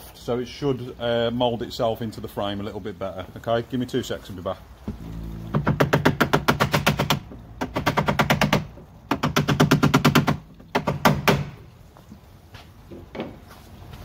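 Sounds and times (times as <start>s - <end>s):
rapid taps on wooden block: 5.6s - 11.6s.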